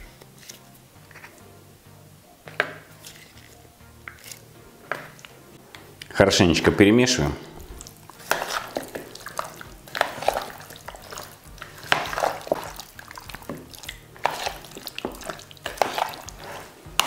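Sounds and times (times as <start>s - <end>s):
squelching of wet marinade mixing: 7.5s - 17.0s.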